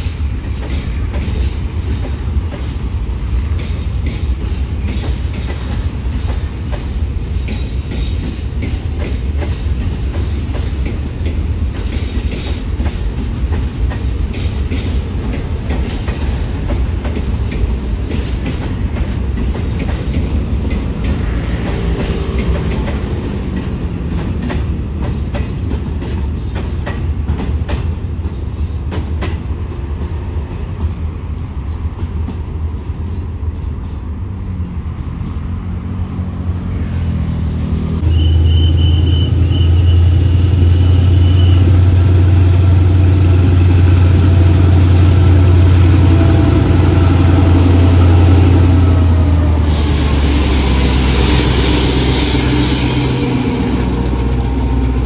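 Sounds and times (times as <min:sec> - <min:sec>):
train wheels clacking on rails: 0:00.0 - 0:34.4, 0:38.0 - 0:55.0
diesel locomotive engine: 0:00.0 - 0:55.0
brief high squeal: 0:38.0 - 0:41.7.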